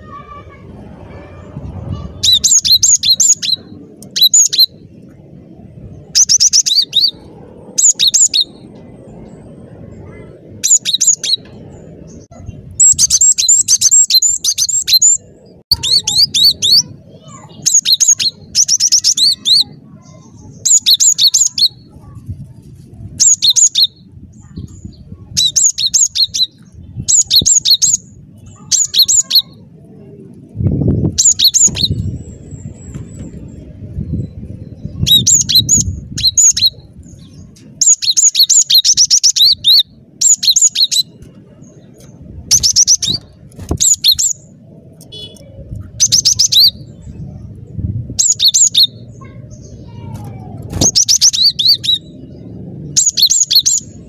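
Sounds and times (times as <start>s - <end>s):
bird singing high notes: 10.0s - 21.9s.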